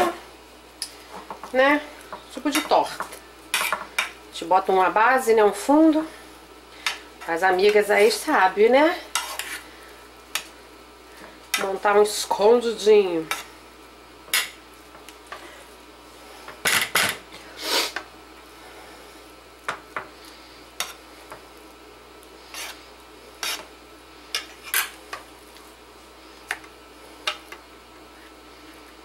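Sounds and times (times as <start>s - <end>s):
metal spoon scraping frying pan: 9.1s - 9.6s.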